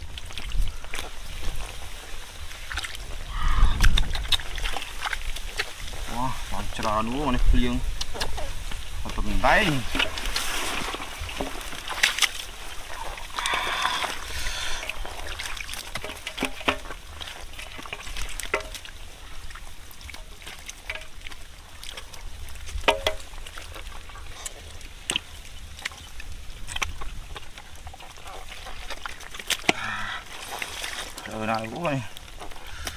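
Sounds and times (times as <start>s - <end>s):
water sloshing and squelching: 0.0s - 32.9s
rustling noise: 3.8s - 13.3s.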